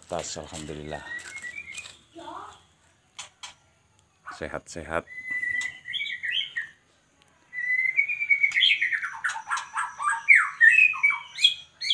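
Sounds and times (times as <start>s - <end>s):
bird whistling song: 0.6s - 2.5s, 5.0s - 6.8s, 7.5s - 11.9s.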